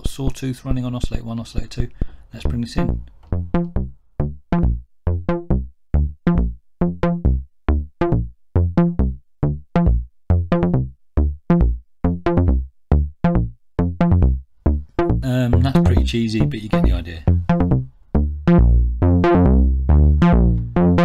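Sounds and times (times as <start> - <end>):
synthesizer plucky sawtooth notes: 2.4 - 21.0.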